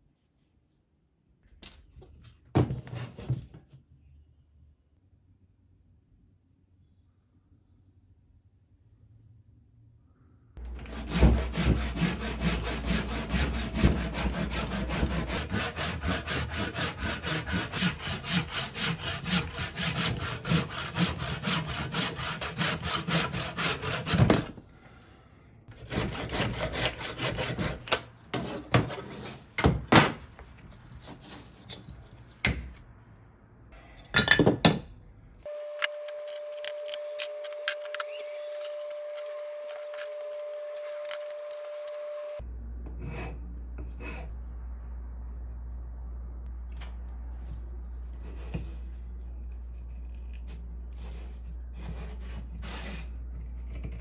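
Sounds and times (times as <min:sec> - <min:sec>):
handsaw cutting wood: 0:10.6 - 0:24.5, 0:25.7 - 0:27.9.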